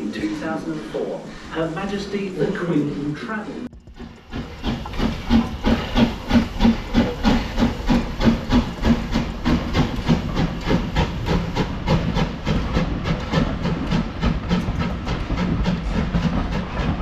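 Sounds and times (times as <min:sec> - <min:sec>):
steam hissing: 0:00.0 - 0:17.0
steam locomotive chuffing: 0:00.0 - 0:17.0
carriages rumbling and clattering: 0:03.7 - 0:17.0.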